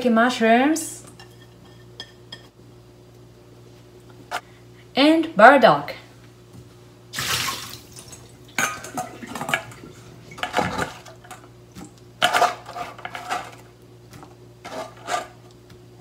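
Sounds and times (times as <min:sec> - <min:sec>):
steel bowls clattering: 0:08.6 - 0:11.4.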